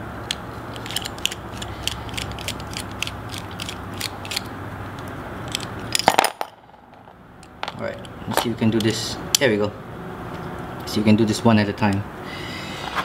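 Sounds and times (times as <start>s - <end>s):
steady low hum: 0.0s - 13.0s
screwdriver metal clicks: 0.3s - 5.8s.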